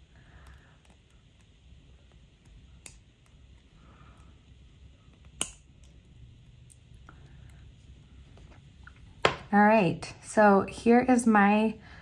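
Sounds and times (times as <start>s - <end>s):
pliers clicking on wire: 2.4s - 3.4s, 5.1s - 6.1s.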